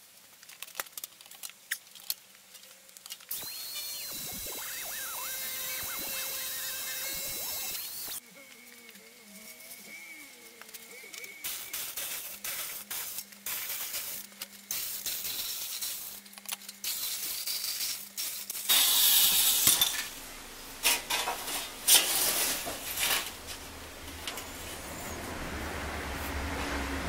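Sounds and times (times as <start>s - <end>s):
electric shear cutting sheet metal: 3.3s - 8.2s, 16.9s - 20.2s.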